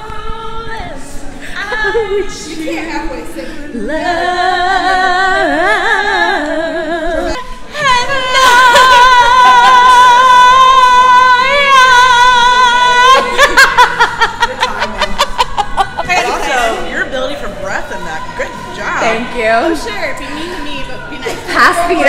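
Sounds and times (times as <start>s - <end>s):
woman singing unaccompanied: 0.0s - 13.5s
woman laughing: 13.2s - 16.9s.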